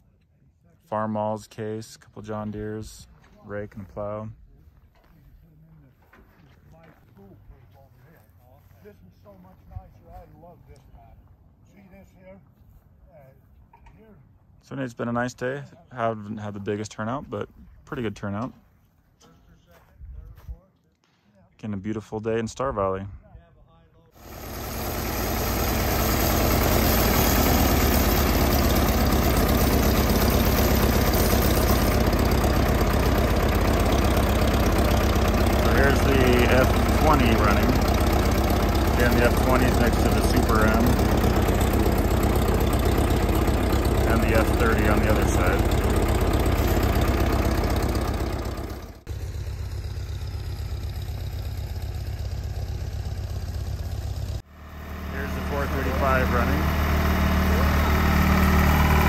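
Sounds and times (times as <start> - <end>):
tractor engine running: 24.2 - 59.0.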